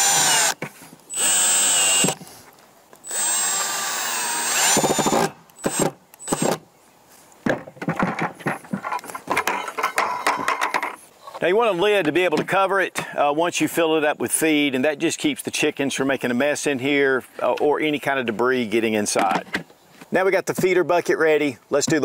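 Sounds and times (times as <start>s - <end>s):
cordless drill driving screws: 0.0s - 2.2s, 3.0s - 6.6s
plastic buckets clattering: 7.5s - 11.0s.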